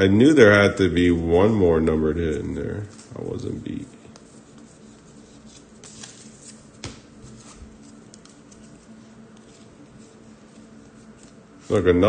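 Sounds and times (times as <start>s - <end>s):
cards sliding and rustling: 4.2s - 11.8s.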